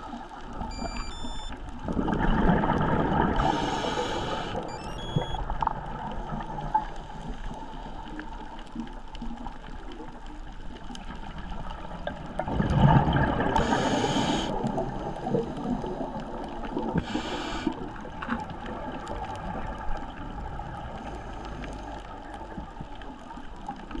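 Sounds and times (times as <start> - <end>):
faint reef crackle clicks: 0.0 - 24.0
diver exhaling bubbles: 1.9 - 4.6, 12.4 - 15.4
regulator inhalation hiss: 3.4 - 4.7, 13.6 - 14.6, 17.0 - 17.8.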